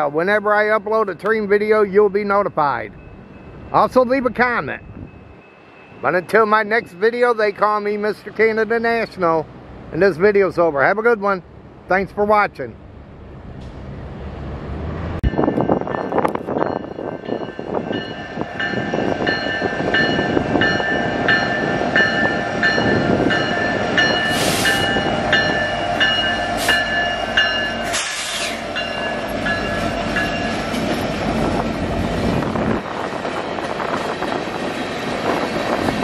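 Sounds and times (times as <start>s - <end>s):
train wheels rumbling on rails: 13.3s - 36.0s
high ringing tone: 15.3s - 28.0s
short hisses: 24.3s - 24.8s, 27.9s - 28.7s.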